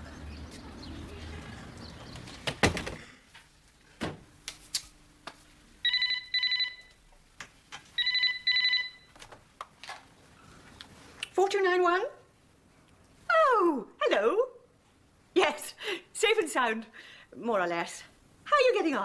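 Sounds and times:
landline telephone ringing: 5.8 - 7.0, 8.0 - 9.2.

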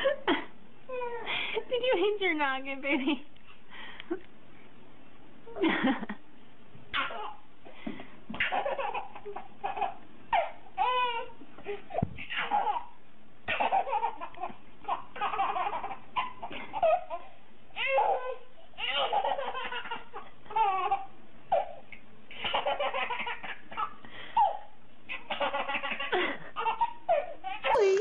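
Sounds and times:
baby giggling: 8.4 - 11.2, 13.5 - 17.2, 17.8 - 21.8, 22.4 - 28.0.

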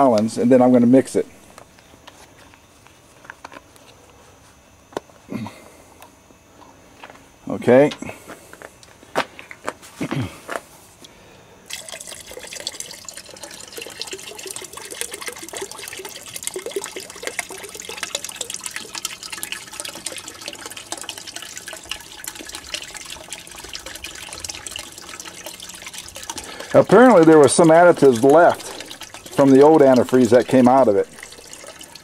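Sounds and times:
liquid pouring into bucket: 11.7 - 32.0.

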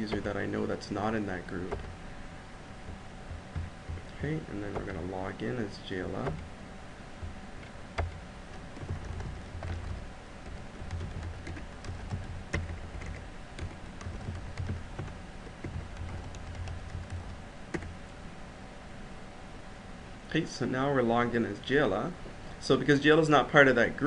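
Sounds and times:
typing on computer keyboard: 8.8 - 17.9.

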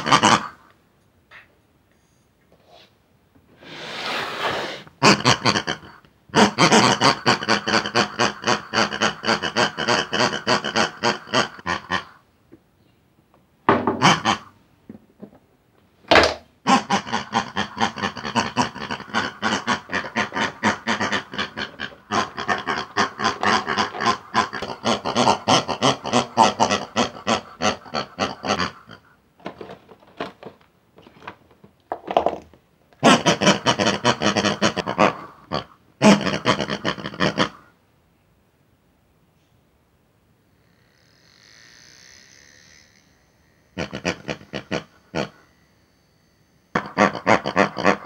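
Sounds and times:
pig grunting and oinking: 0.0 - 0.6, 5.0 - 12.2, 13.9 - 14.6, 16.6 - 29.2, 33.0 - 37.7, 43.7 - 45.6, 46.7 - 48.0.

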